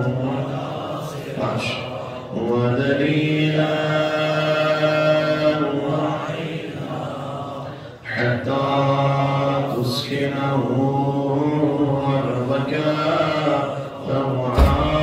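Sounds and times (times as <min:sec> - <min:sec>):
man chanting: 0:08.1 - 0:15.0.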